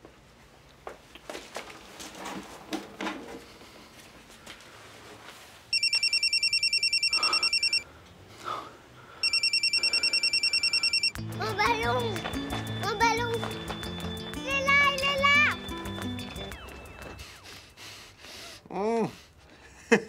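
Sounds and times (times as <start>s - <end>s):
telephone ringing electronic trill: 5.7s - 7.8s, 9.2s - 17.8s.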